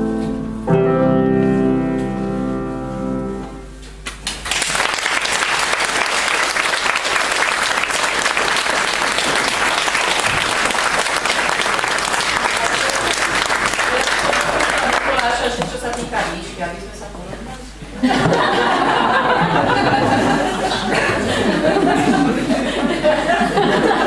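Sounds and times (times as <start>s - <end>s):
grand piano chord: 0.0s - 3.8s
audience applause: 4.1s - 16.0s.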